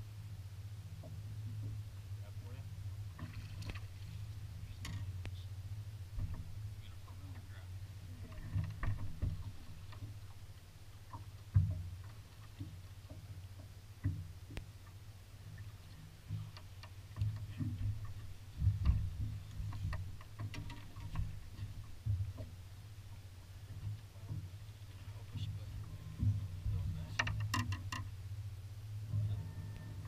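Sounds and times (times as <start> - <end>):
thumps and knocks on boat deck: 6.1 - 7.5, 8.2 - 10.4, 11.1 - 15.0, 16.0 - 24.6, 25.3 - 28.1, 29.1 - 30.0.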